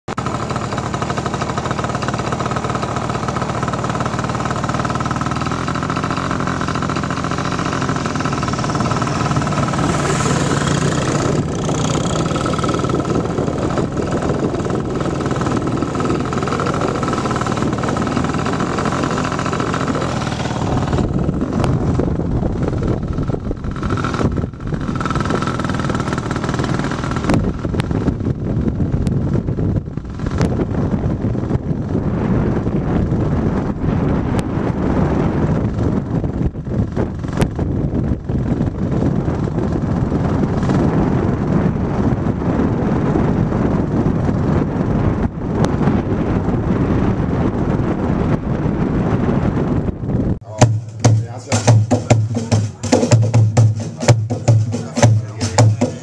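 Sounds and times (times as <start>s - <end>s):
motorbike engine running: 0.1s - 56.0s
wind rushing over microphone: 0.1s - 56.0s.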